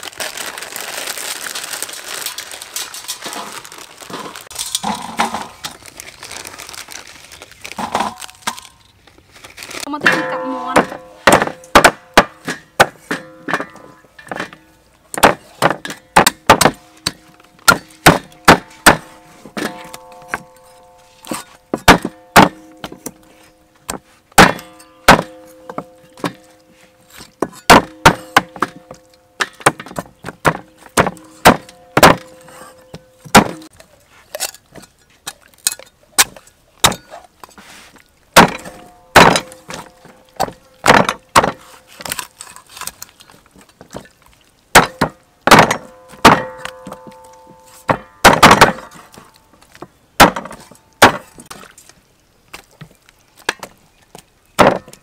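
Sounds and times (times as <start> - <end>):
cleaver chopping on wooden block: 30.4 - 32.3.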